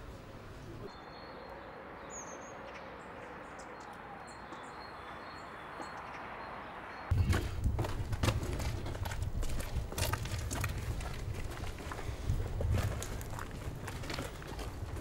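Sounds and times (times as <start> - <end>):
faint bird chirps: 0.8 - 7.2.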